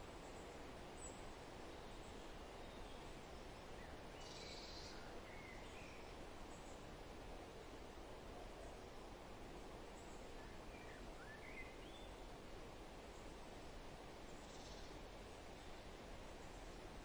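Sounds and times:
outdoor background hiss: 0.0s - 17.0s
faint bird chirps: 3.8s - 6.8s, 10.0s - 12.3s, 14.3s - 15.0s.

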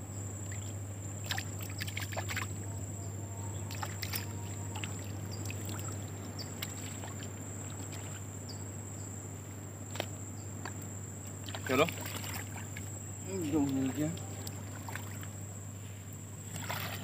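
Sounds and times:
sharp splashes and clicks: 0.5s - 2.5s, 3.7s - 6.0s, 6.6s - 8.2s, 11.4s - 12.9s, 16.5s - 17.0s
footsteps splashing through water: 1.2s - 2.5s, 3.7s - 6.0s, 6.6s - 8.3s, 11.4s - 15.3s, 16.5s - 17.0s
sea waves: 3.7s - 8.3s, 11.4s - 15.4s.

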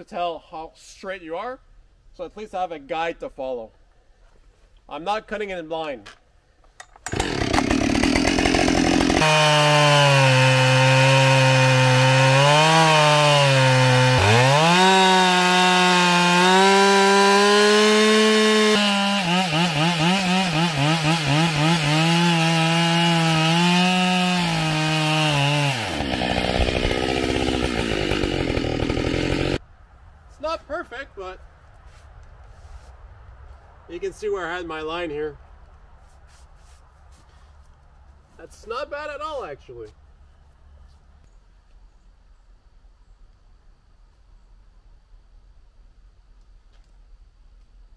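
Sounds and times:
chainsaw cutting log at full throttle: 7.1s - 29.6s.

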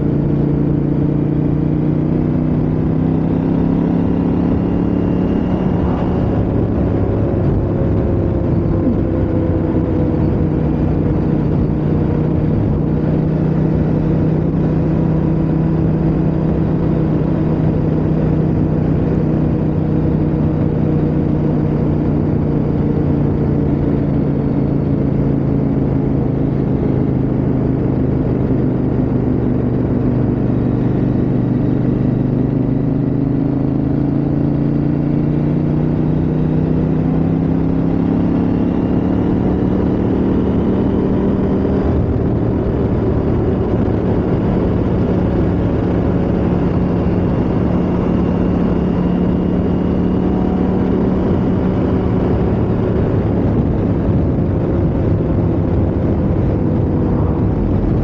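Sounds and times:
motorcycle engine cruising: 0.0s - 58.0s
wind noise rushing: 51.8s - 58.0s.

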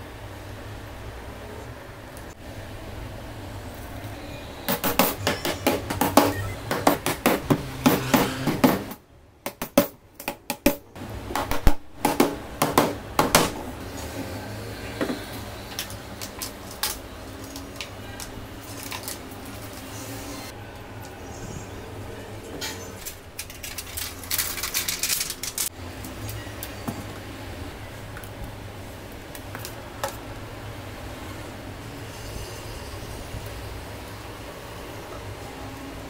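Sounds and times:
hammer striking nails into wood: 4.7s - 13.6s.

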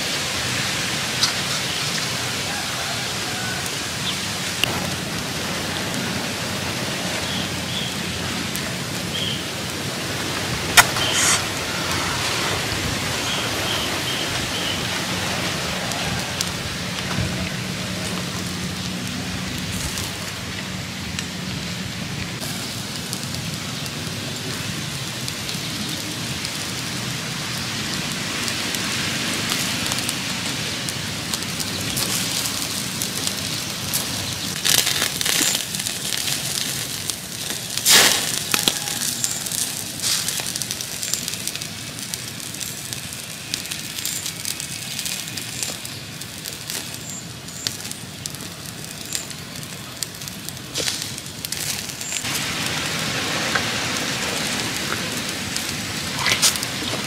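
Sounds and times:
fire crackling and popping: 0.0s - 57.0s
fire hissing: 0.0s - 57.0s.

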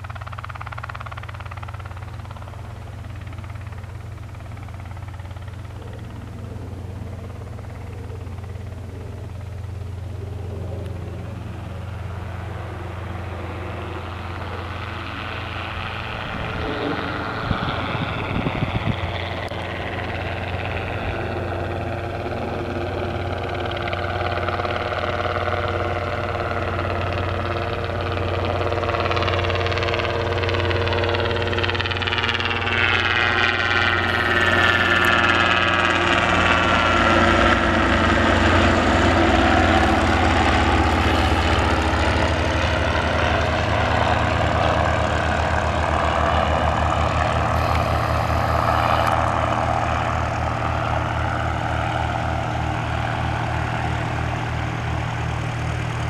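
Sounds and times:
helicopter flying past: 0.0s - 56.0s.

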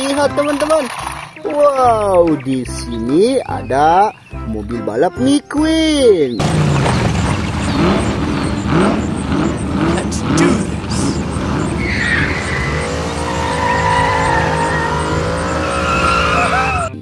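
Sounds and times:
tyres squealing on asphalt: 0.0s - 4.5s, 6.0s - 17.0s
car engine revving: 6.3s - 17.0s.

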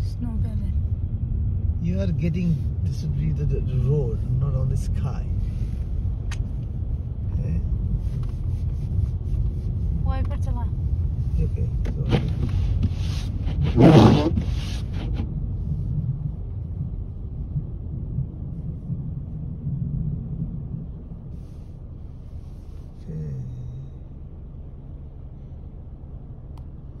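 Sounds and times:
car driving over snow: 7.5s - 22.9s.

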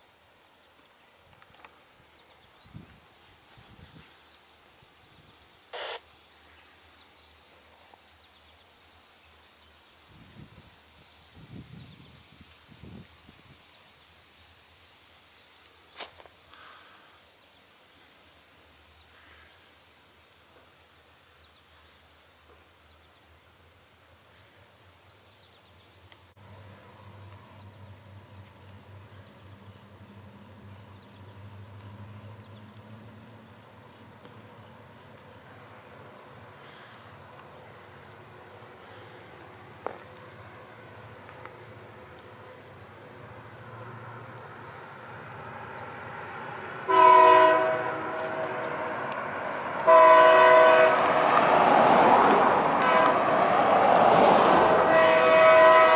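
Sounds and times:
insects chirring: 0.0s - 55.9s
diesel locomotives rumbling: 37.2s - 55.9s
train air horn blasts: 46.8s - 51.5s, 52.5s - 53.7s, 54.6s - 55.9s.

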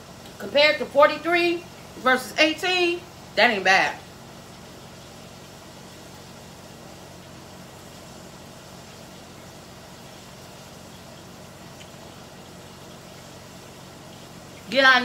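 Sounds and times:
low hum with faint hiss: 0.0s - 15.0s.

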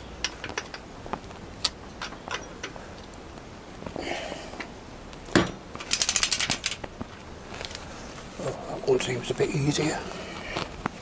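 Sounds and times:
ratchet wrench clicking: 5.9s - 6.8s.

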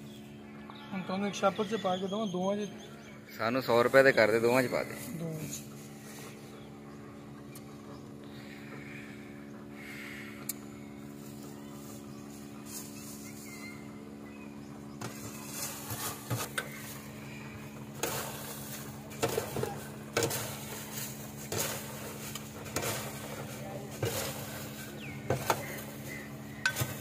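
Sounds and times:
machine hum: 0.0s - 27.0s
popcorn scraping on metal tray: 15.0s - 27.0s.

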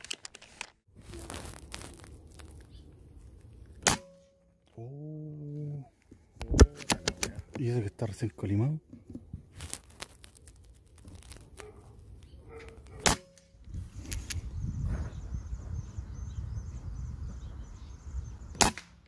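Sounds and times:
air rifle shots: 18.5s - 19.0s.

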